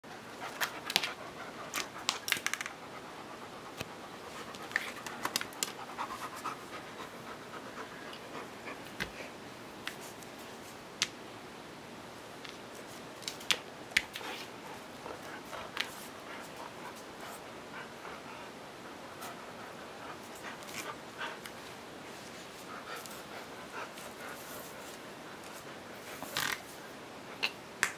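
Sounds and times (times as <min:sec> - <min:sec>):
dog panting: 0:00.2 - 0:02.1, 0:02.7 - 0:09.4, 0:14.2 - 0:26.2
claws clicking on wooden floor: 0:00.5 - 0:02.8.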